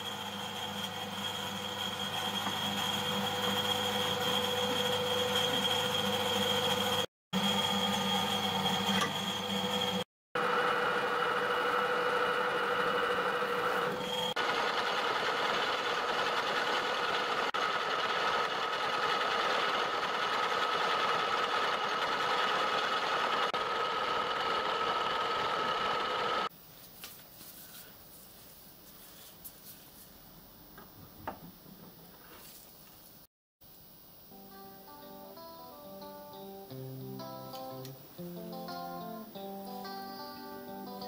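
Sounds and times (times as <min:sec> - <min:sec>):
metal lathe gear whine: 0:00.0 - 0:26.5.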